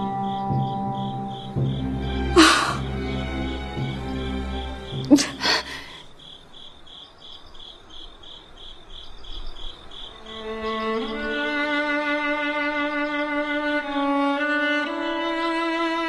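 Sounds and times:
soft bowed strings: 0:00.0 - 0:05.9, 0:10.2 - 0:16.0
crickets chirping: 0:00.0 - 0:14.0.

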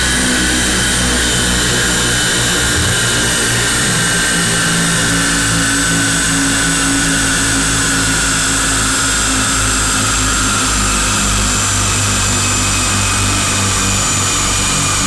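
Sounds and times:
car engine running under load: 0:00.0 - 0:15.0
high whine from tyres and rollers: 0:00.0 - 0:15.0.

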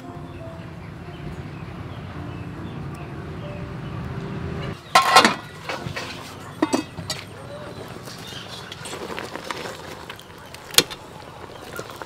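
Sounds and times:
ladle clinking in steel pot: 0:04.9 - 0:07.3.

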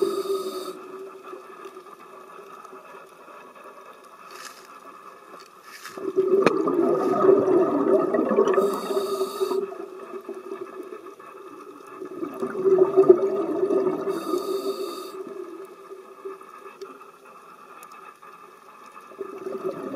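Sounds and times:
regulator hiss: 0:00.0 - 0:01.6, 0:08.6 - 0:09.8, 0:14.0 - 0:15.5
exhaled bubbles gurgling: 0:06.0 - 0:17.3, 0:19.0 - 0:19.9.

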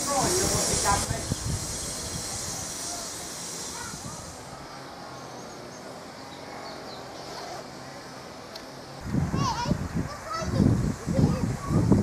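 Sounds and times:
high hiss: 0:00.0 - 0:12.0
murmur of distant voices: 0:00.0 - 0:12.0.

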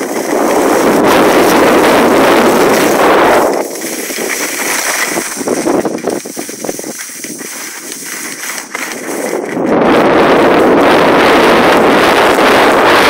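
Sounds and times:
skis hissing on snow: 0:00.0 - 0:09.4
wind rushing over microphone: 0:00.0 - 0:13.0.

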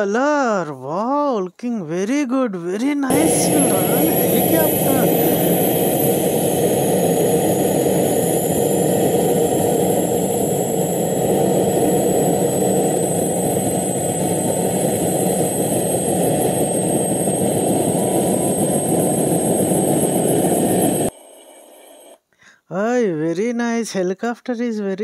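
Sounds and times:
helicopter turbine and rotor din: 0:03.1 - 0:22.1
thin high whine rising: 0:03.1 - 0:22.2.

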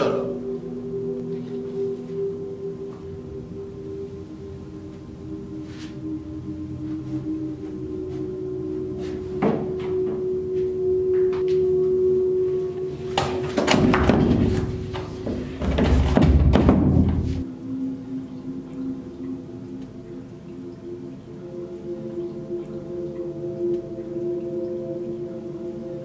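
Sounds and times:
film score drone: 0:00.0 - 0:26.0
banging on wooden door: 0:15.3 - 0:17.4.

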